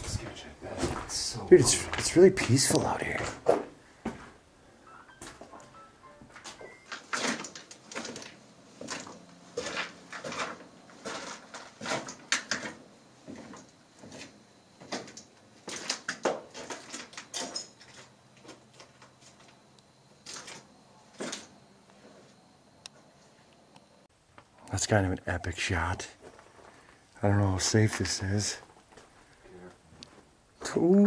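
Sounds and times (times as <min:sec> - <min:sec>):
footsteps crunching over rubble: 0:00.0 - 0:04.4, 0:06.4 - 0:19.6, 0:26.2 - 0:27.1, 0:27.8 - 0:30.7.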